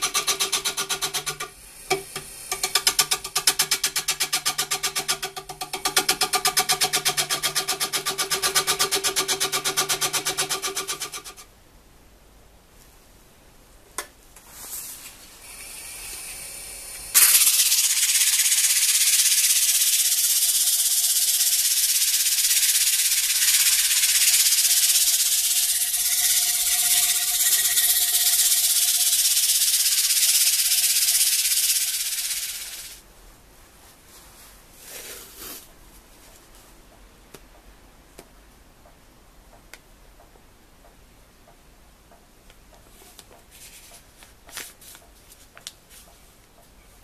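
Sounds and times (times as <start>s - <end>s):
abrasive hissing on spinning wood: 14.6s - 33.0s.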